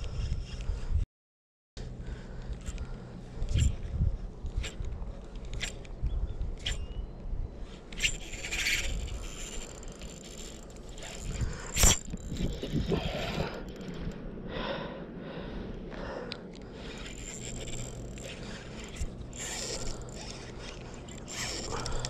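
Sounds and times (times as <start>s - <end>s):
fishing reel gears whirring: 4.4s - 14.2s, 16.5s - 22.0s.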